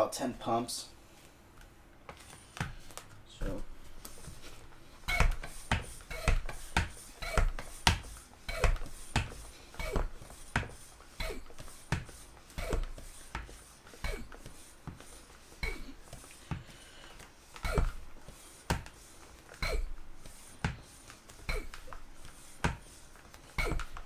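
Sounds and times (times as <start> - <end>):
hand pump strokes: 5.0 - 16.4, 17.4 - 24.0.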